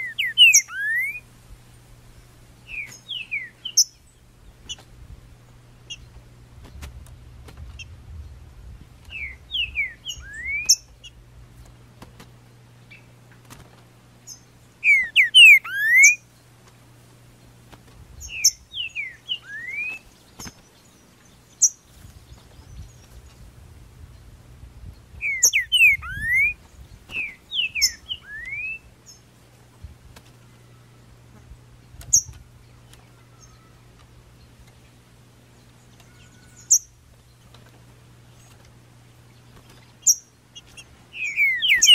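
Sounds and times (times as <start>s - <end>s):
bird singing sliding notes: 0.0s - 1.2s, 14.3s - 16.2s, 25.2s - 29.2s, 39.4s - 41.9s.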